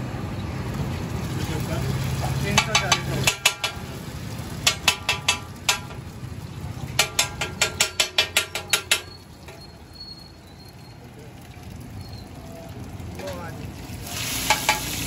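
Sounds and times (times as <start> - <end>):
egg frying in oil: 0.3 - 15.0
metal spatula tapping on griddle: 2.5 - 3.9, 4.6 - 6.1, 6.9 - 9.6, 14.5 - 15.0.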